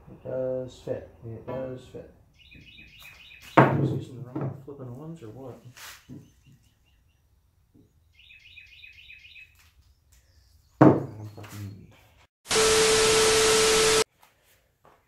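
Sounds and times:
small bird chirping rapidly: 0:02.3 - 0:03.6, 0:07.9 - 0:10.8
loud static hiss: 0:12.5 - 0:14.0.

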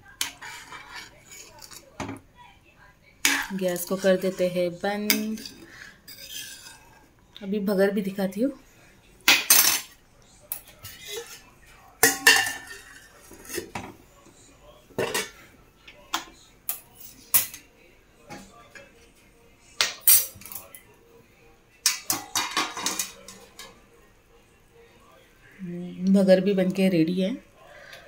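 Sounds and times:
steel cookware clanking: 0:03.2 - 0:04.4, 0:05.0 - 0:07.0, 0:09.3 - 0:13.9, 0:15.0 - 0:15.4, 0:21.8 - 0:23.8.

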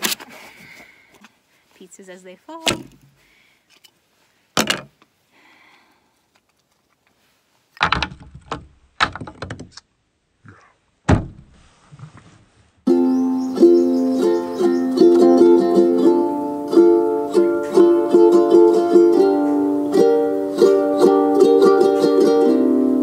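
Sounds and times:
plywood pieces clattering: 0:04.6 - 0:05.0, 0:07.8 - 0:09.8
ukulele music: 0:12.9 - 0:23.0.

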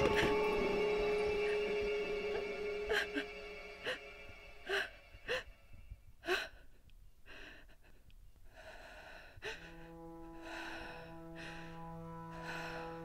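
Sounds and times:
low held music chord: 0:00.0 - 0:06.2, 0:09.4 - 0:13.0
woman breathing: 0:00.0 - 0:13.0.

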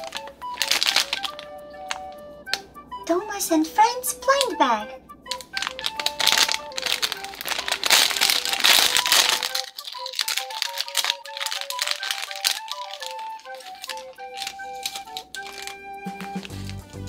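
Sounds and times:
plastic bag crinkling and tearing: 0:00.0 - 0:01.5, 0:05.3 - 0:16.9
simple background melody: 0:00.0 - 0:17.0.

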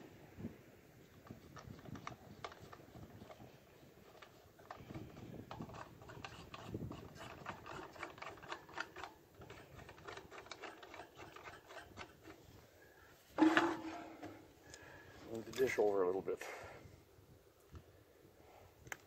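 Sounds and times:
loud scrape: 0:13.3 - 0:14.5.

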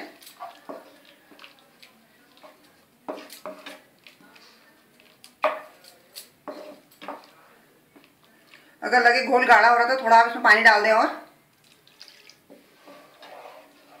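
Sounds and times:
wooden spatula scraping a wok: 0:00.0 - 0:05.7, 0:06.4 - 0:07.3, 0:12.4 - 0:14.0.

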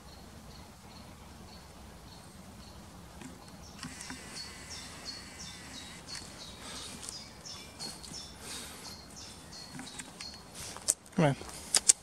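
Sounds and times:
small bird calling: 0:02.1 - 0:10.8
footsteps on dry leaves: 0:05.6 - 0:09.5.

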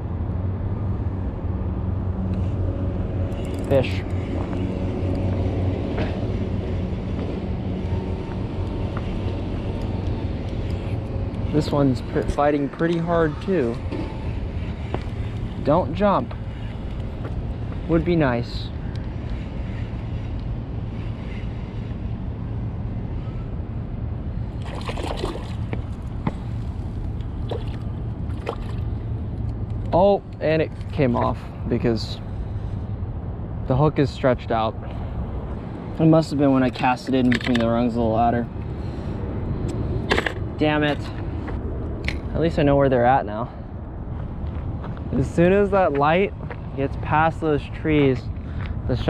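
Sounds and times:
low engine drone: 0:00.0 - 0:49.0
steady low rumble: 0:00.0 - 0:49.0
fish thrashing and splashing: 0:24.6 - 0:25.7
small water splashes: 0:24.6 - 0:25.7, 0:27.4 - 0:28.8.

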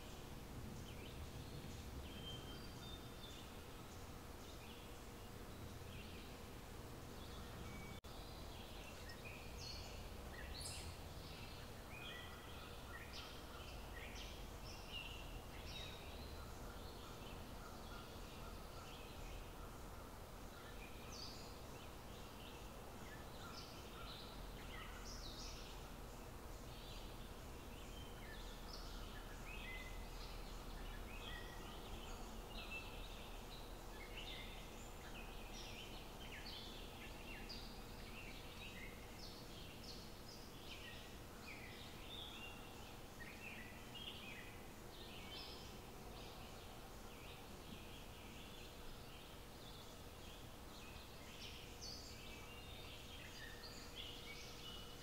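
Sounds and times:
faint birds chirping: 0:00.0 - 0:55.0.

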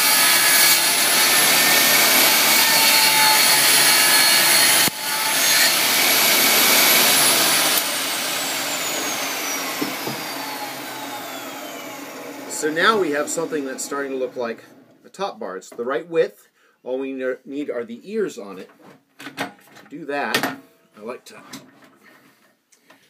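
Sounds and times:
table saw whining: 0:00.0 - 0:15.0.

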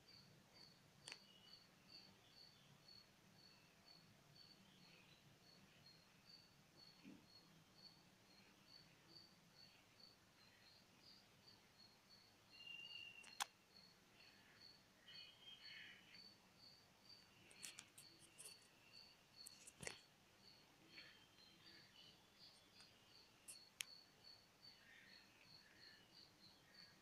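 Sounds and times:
faint even chirping: 0:00.0 - 0:27.0
sharp clicks: 0:13.2 - 0:13.6.

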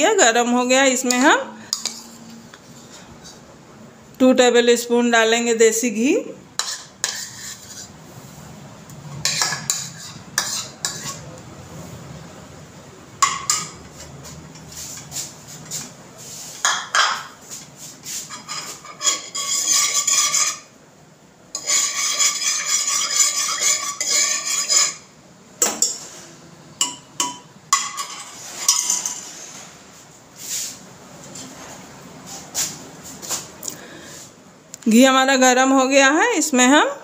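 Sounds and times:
steel spoon scraping metal pot: 0:06.6 - 0:08.0, 0:09.1 - 0:11.3, 0:18.2 - 0:20.7, 0:21.5 - 0:25.1, 0:27.8 - 0:29.6.

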